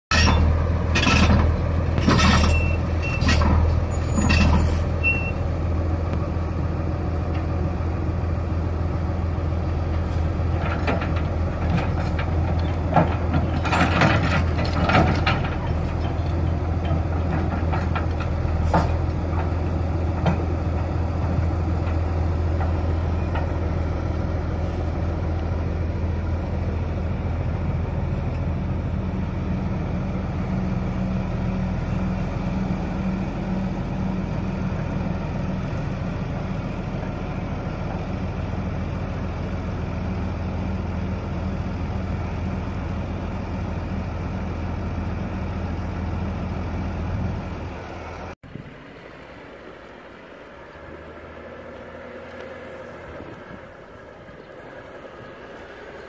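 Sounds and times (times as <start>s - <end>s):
metallic clanks and rattles: 0.1s - 5.0s, 10.5s - 19.5s.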